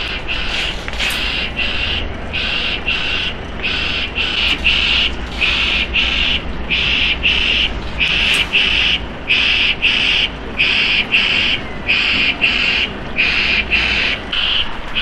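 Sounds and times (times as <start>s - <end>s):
diesel truck engine running: 0.0s - 15.0s
double beep warning alarm: 0.0s - 15.0s.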